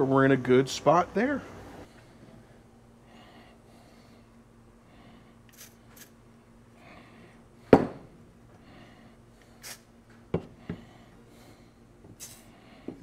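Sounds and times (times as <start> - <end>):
aerosol can spraying: 5.5 - 6.2.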